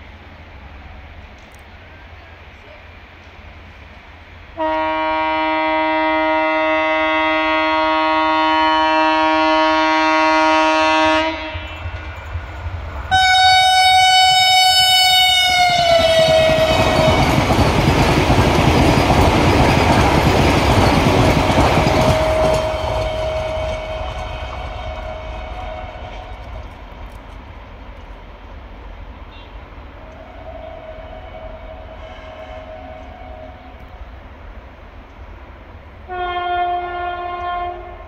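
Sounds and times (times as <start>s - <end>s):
train rushing past with rail clatter: 0.0s - 38.0s
train horn blasts: 4.6s - 12.0s, 13.1s - 17.4s, 22.0s - 26.7s, 29.3s - 34.0s, 36.1s - 38.0s.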